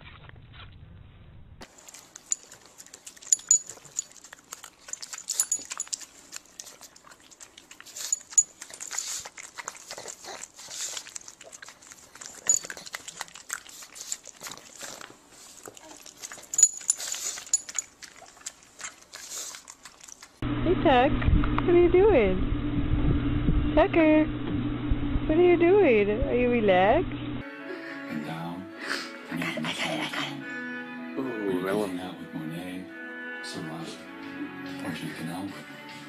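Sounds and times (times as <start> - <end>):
metal collar tags jingling: 3.2 - 4.2, 4.8 - 6.1, 12.4 - 12.8, 16.4 - 17.8.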